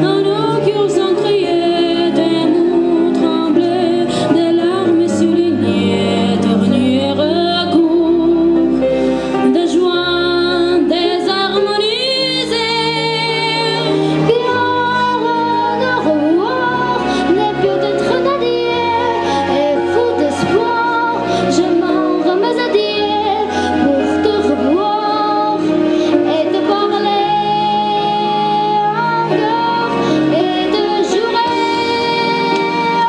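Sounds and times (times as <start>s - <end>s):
girl singing into a microphone: 0.0s - 8.6s, 9.4s - 33.0s
instrumental accompaniment: 0.0s - 33.0s.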